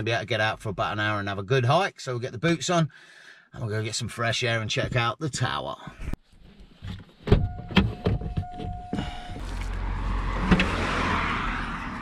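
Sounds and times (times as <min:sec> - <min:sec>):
steady electronic car tone: 0:07.4 - 0:09.8.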